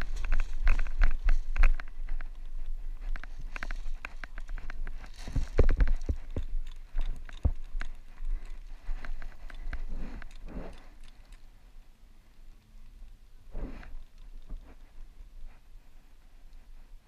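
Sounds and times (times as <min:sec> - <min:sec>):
footsteps on sandy dirt trail: 0:00.0 - 0:10.9
dry grass brushing clothing: 0:13.5 - 0:17.0.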